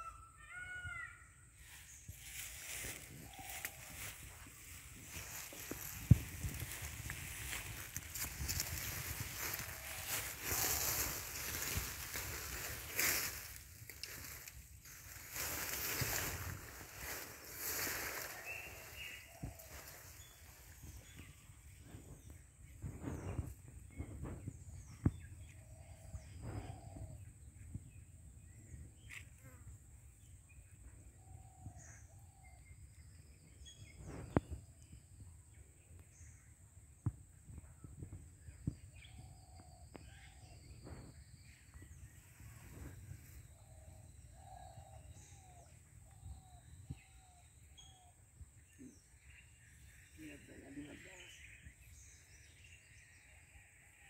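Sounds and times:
birds chirping: 0:00.0 - 0:27.0, 0:38.5 - 0:53.6
wind rumble: 0:03.0 - 0:24.8.

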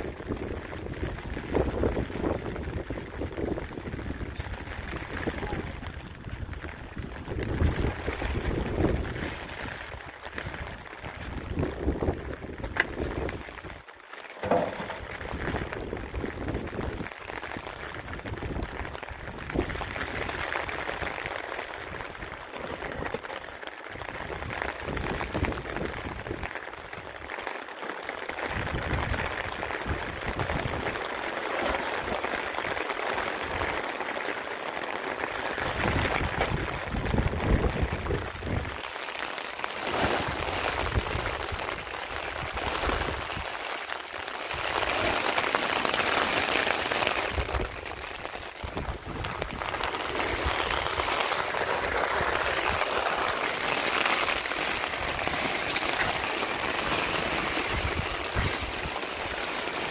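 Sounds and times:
heavy rain falling: 0:00.0 - 0:59.9
water pouring: 0:14.2 - 0:16.9, 0:44.2 - 0:59.9.

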